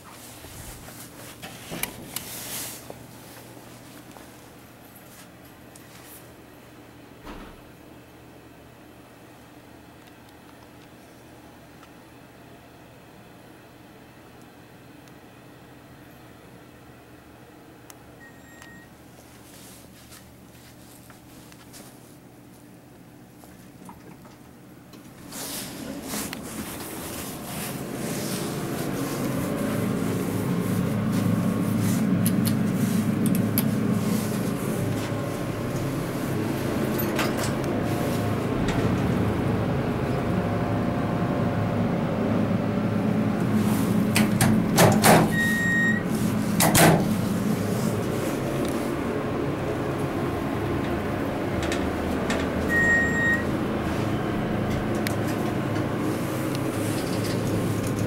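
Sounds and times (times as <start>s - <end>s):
elevator hum: 23.7s - 58.0s.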